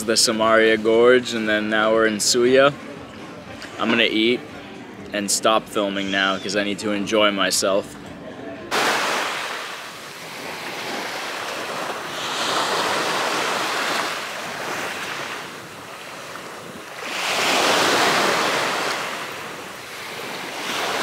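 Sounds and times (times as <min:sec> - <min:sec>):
sea waves washing on shore: 0:08.7 - 0:21.0.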